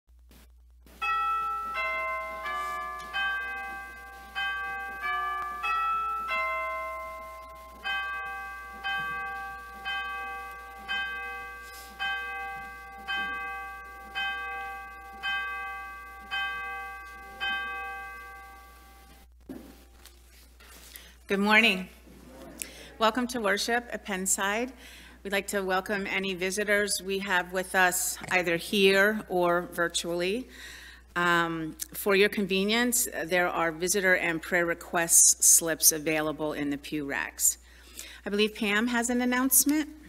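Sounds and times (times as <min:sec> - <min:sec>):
bell tolling: 0:01.0 - 0:19.1
church chime melody: 0:01.0 - 0:19.3.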